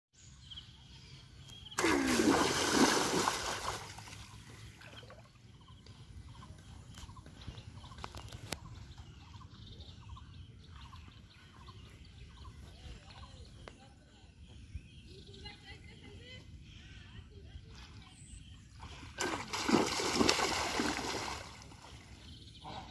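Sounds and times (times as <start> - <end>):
spear splashing into water: 1.8 - 4.3, 19.2 - 21.7
legs wading through water: 1.8 - 9.1, 17.6 - 22.9.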